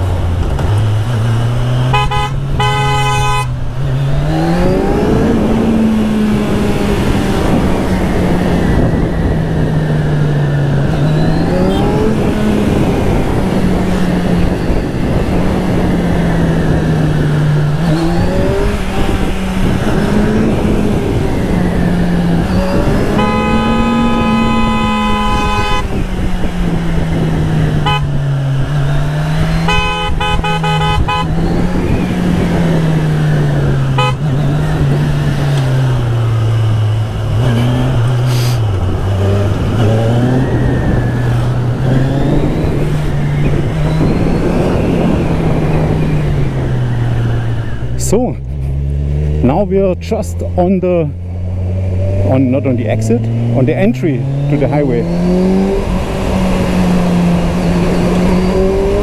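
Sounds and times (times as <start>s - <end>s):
motorcycle engine revving: 0.0s - 59.0s
wind and road noise: 0.0s - 59.0s
vehicle horn: 1.9s - 3.6s, 23.0s - 26.0s, 27.8s - 28.2s, 29.6s - 31.3s, 33.9s - 34.3s.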